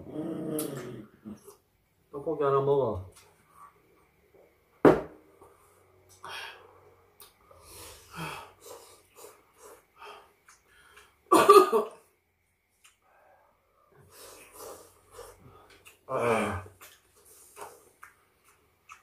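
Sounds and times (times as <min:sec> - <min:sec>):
person coughing: 0:11.3 - 0:12.0
noodle slurping and chewing: 0:14.1 - 0:16.1.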